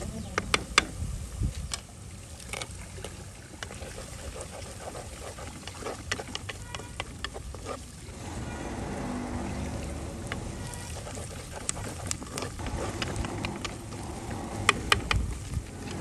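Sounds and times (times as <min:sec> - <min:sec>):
wooden spoon scraping clay pot: 0:02.4 - 0:16.0
steady low rumble: 0:08.0 - 0:16.0.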